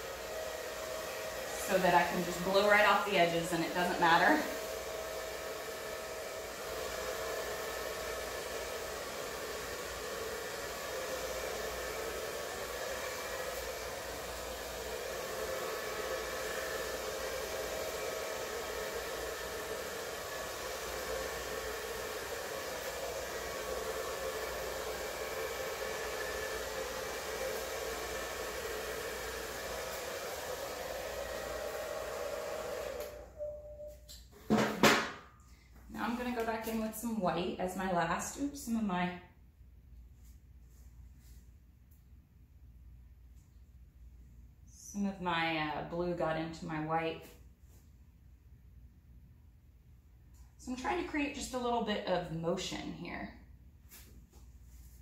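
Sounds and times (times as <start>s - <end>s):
blow dryer running: 0.0s - 33.5s, 34.5s - 38.9s.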